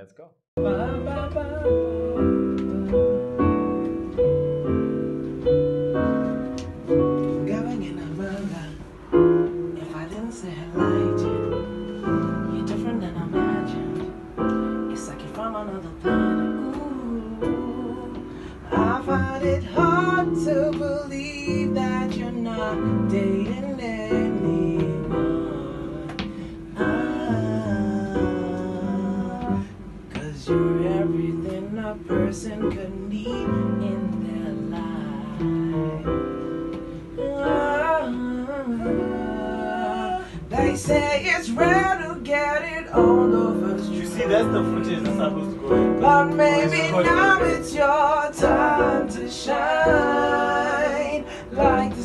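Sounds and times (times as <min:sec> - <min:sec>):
keyboard playing: 0:00.0 - 0:52.0
two men singing together: 0:37.2 - 0:52.0.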